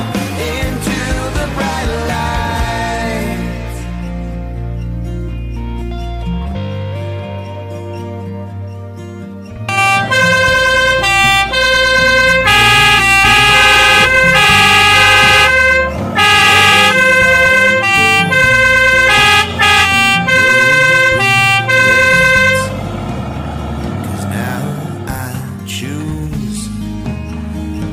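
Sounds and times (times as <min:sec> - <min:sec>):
soft background music: 0:00.0 - 0:27.9
fire engine siren: 0:09.7 - 0:25.2.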